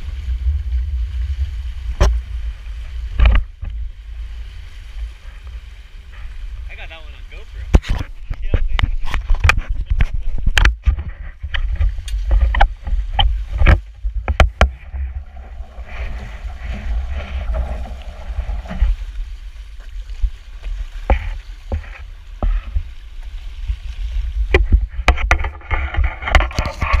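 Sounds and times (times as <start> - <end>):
water slapping hull: 0.0 - 27.0
wind buffeting microphone: 0.0 - 27.0
hull hissing through water: 14.5 - 19.8.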